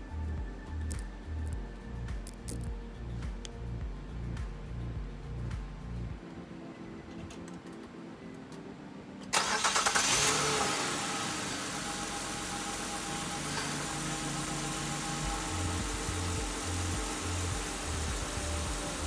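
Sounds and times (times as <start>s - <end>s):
car engine cranking: 9.3s - 19.0s
car engine idling: 9.4s - 19.0s.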